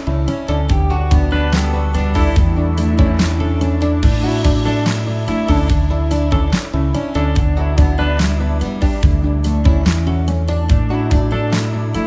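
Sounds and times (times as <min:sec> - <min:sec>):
upbeat guitar music with beat: 0:00.0 - 0:12.0.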